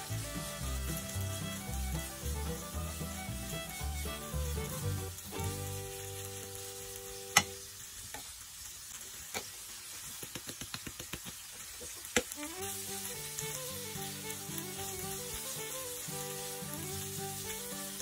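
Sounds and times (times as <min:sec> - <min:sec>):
background music: 0:00.0 - 0:07.5, 0:12.4 - 0:18.0
food sizzling in a pan: 0:00.0 - 0:18.0.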